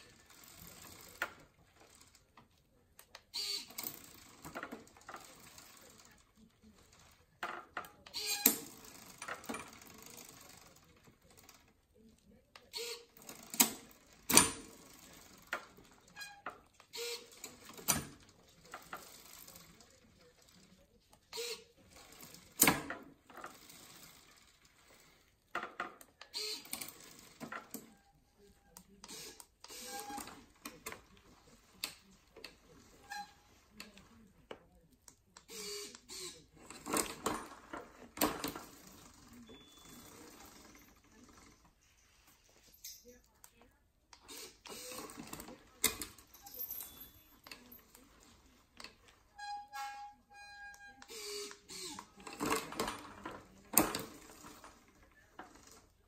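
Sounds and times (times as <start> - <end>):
chain rattling: 46.0 - 48.0.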